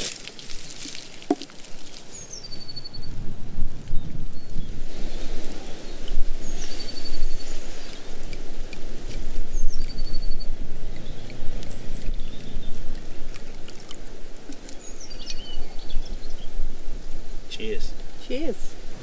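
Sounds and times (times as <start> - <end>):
bird trilling: 14.6 - 16.5.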